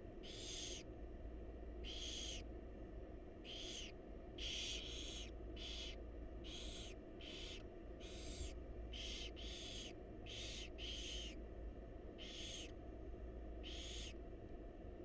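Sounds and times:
steady low hum: 0.0 - 15.0
owls rasping hiss calls: 0.2 - 0.9, 1.8 - 2.5, 3.4 - 11.4, 12.2 - 12.7, 13.6 - 14.2.

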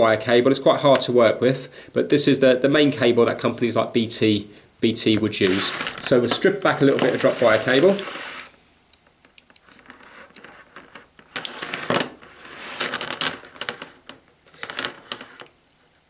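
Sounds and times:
plastic sheath scraping and rustling: 5.3 - 8.6, 9.6 - 15.6.

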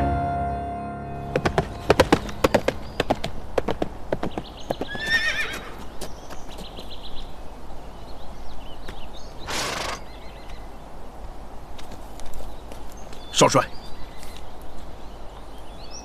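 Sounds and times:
horse hooves clopping: 1.2 - 7.3
horse whinnying: 4.9 - 5.8, 9.5 - 10.0.

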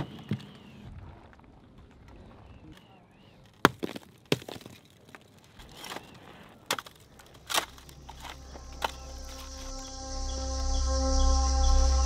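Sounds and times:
rocks knocking and crunching: 3.4 - 9.5.

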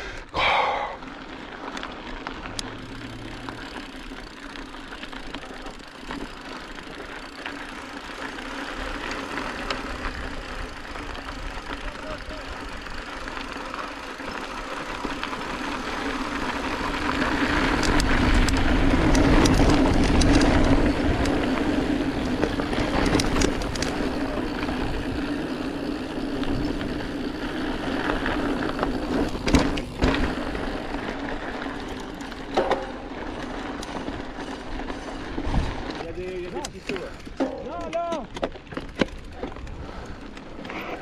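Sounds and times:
bike tyre rumble: 0.0 - 41.0
bike knocking over bumps: 28.8 - 30.9, 32.3 - 33.2.

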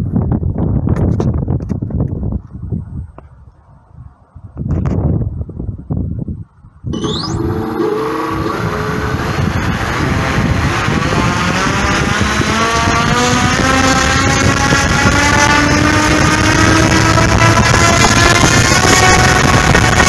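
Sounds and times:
electric motor whine: 7.0 - 20.0
propeller rush: 7.0 - 20.0.

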